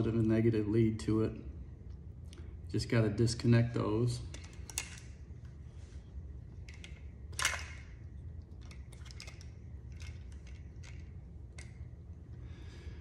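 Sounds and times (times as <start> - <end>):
wire connectors clicking and scraping: 4.2 - 5.6, 6.5 - 12.0.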